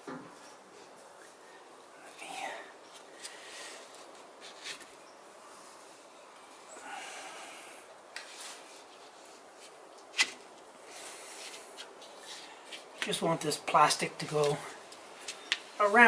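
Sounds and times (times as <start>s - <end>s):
close breathing: 0.8s - 4.1s, 6.7s - 8.7s, 10.8s - 12.9s
rubbing and handling: 2.8s - 6.1s, 8.2s - 13.2s.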